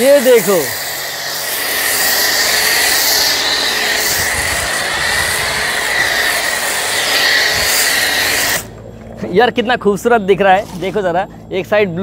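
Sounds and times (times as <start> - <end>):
pressure washer spraying foam: 0.0 - 8.8.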